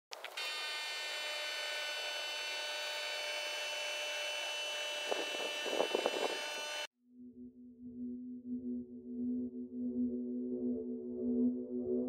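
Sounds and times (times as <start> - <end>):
water pump whining: 0.1 - 6.9.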